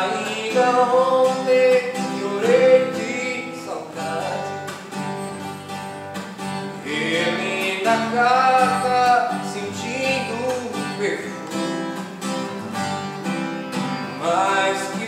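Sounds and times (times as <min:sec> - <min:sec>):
man singing: 0:00.0 - 0:04.8, 0:06.8 - 0:11.5, 0:14.0 - 0:15.0
acoustic guitar: 0:00.0 - 0:15.0.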